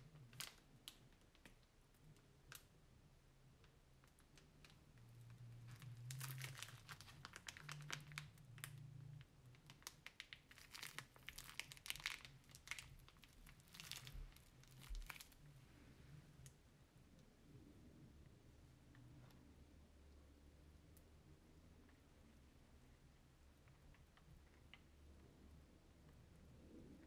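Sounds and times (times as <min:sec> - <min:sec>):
plastic bag crinkling: 0:04.6 - 0:08.8, 0:09.5 - 0:15.5.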